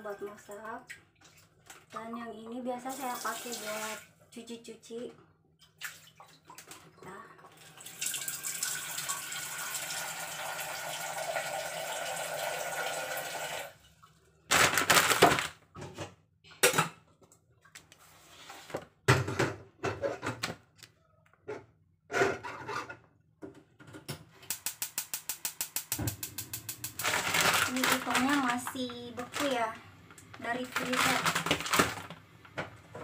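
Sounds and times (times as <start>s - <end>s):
tap water running into saucepan: 7.6s - 13.8s
gas igniter clicking: 24.5s - 27.0s.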